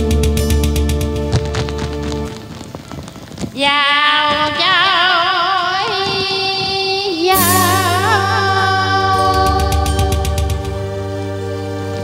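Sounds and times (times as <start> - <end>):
bass and chords: 0.0 - 2.4, 7.3 - 12.0
lead melody with wide vibrato: 7.3 - 12.0.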